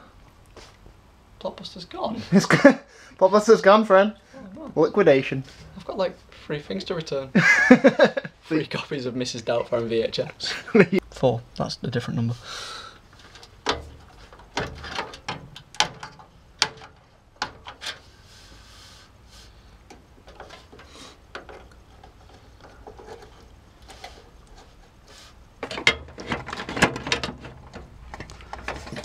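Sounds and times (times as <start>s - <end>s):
plastic and metal clicks and knocks: 13.2s - 18.0s.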